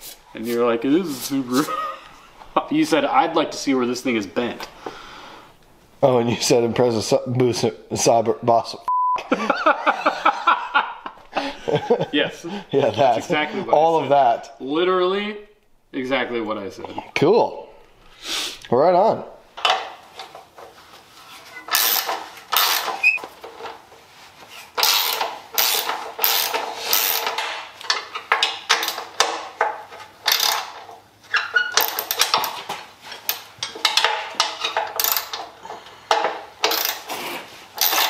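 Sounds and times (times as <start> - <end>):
ratchet wrench clicking on metal: 21.7 - 23.2, 24.8 - 29.4, 30.2 - 30.9, 31.7 - 32.5, 33.3 - 35.5, 36.1 - 37.1.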